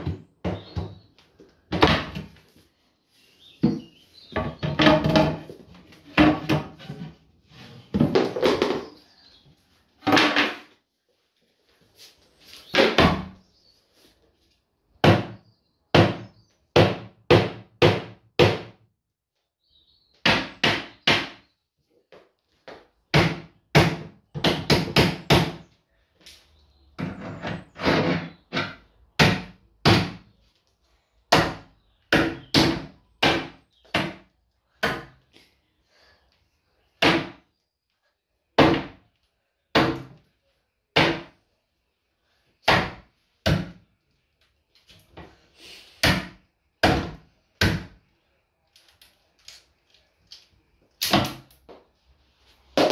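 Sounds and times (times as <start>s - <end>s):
wooden kitchen units being smashed: 1.7s - 2.4s, 3.6s - 7.1s, 10.0s - 10.7s.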